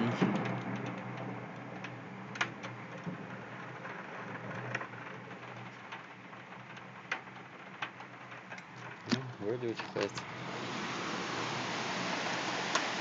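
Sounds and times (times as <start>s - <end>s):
sharp rain ticks: 0.0s - 13.0s
heavy rain hiss: 2.0s - 13.0s.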